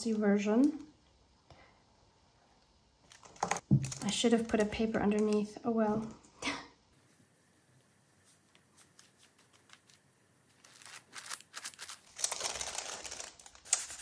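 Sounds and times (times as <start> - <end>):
stiff page rustling: 8.6 - 14.0.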